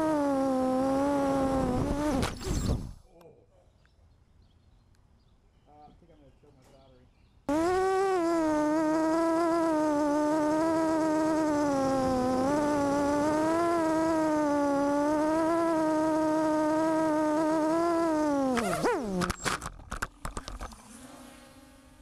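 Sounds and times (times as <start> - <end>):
quadcopter motors buzzing whine: 0.0 - 3.0, 7.5 - 22.0.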